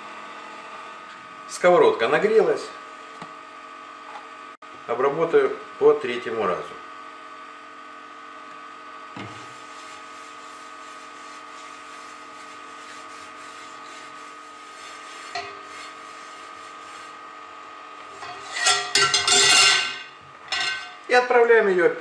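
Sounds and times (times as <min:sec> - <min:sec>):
constant hum: 0:09.2 - 0:17.1, 0:17.8 - 0:21.4
cloth scrubbing a skillet: 0:09.4 - 0:17.2, 0:18.0 - 0:20.0
metallic clatter of skillet: 0:18.2 - 0:21.0.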